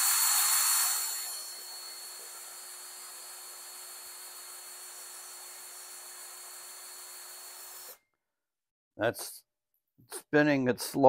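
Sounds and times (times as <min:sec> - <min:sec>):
cordless drill running: 0:00.0 - 0:08.0.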